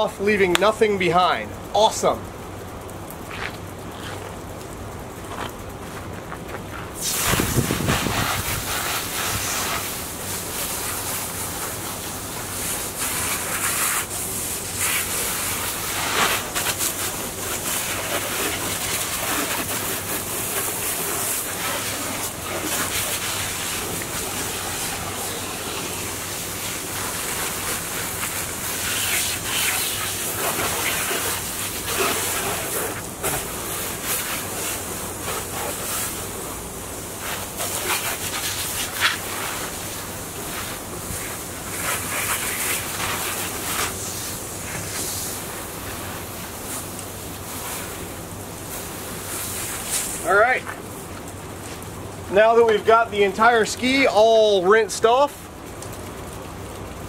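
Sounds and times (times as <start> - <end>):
hose spray hissing on hull: 6.7 - 55.5.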